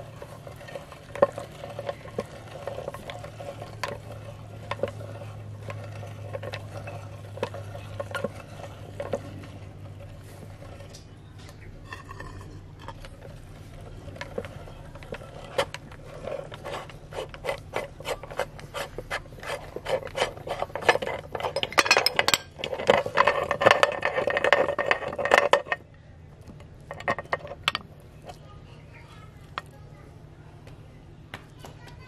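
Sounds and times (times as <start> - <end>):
meat grinder crushing corn: 0.0 - 11.0, 12.8 - 25.8.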